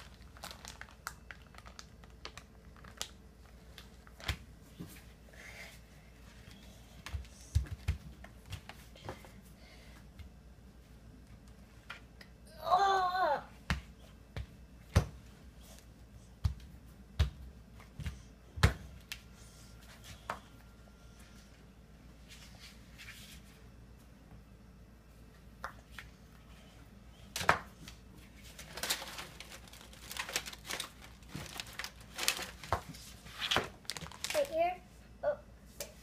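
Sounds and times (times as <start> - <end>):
aluminium foil crinkling: 0.0 - 4.4, 28.4 - 34.8.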